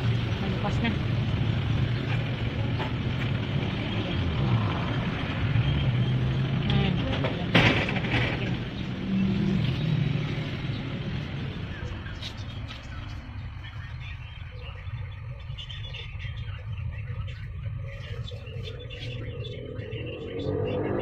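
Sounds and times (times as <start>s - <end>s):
motorcycle engines passing: 0.0s - 21.0s.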